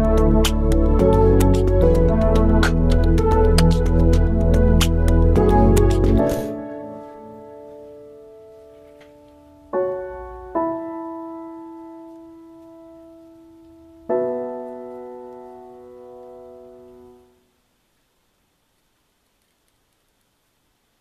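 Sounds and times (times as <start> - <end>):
slow piano chords: 0.0 - 17.4.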